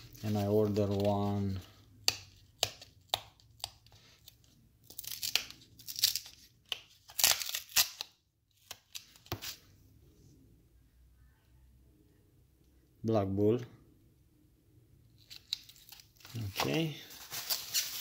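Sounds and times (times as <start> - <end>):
plastic packaging crinkling: 15.3 - 18.0.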